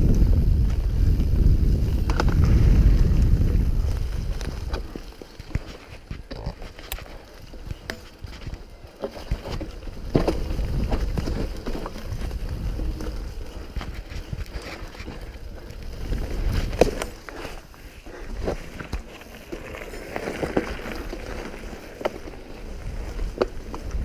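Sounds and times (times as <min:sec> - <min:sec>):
low rumble: 0:00.0 - 0:04.8
bike tyres crunching over dirt: 0:00.0 - 0:24.0.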